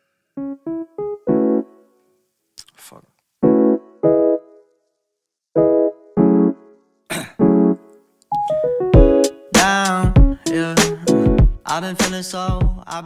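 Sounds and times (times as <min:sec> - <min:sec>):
electric piano chords: 0:00.4 - 0:02.0, 0:03.4 - 0:04.7, 0:05.6 - 0:06.8, 0:07.4 - 0:11.6.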